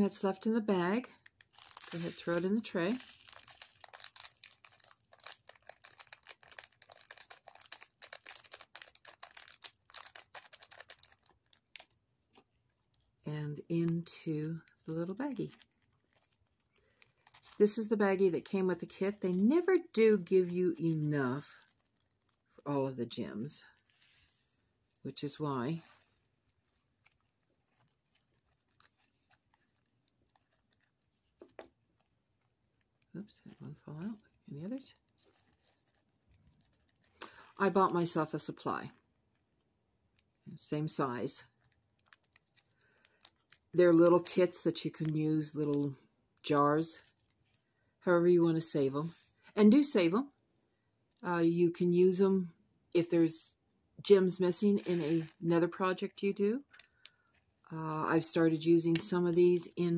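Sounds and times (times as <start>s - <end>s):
plastic bag crinkling: 0.3s - 39.6s, 40.9s - 45.9s, 56.6s - 59.9s
tiny plastic gems rattling: 1.3s - 11.9s.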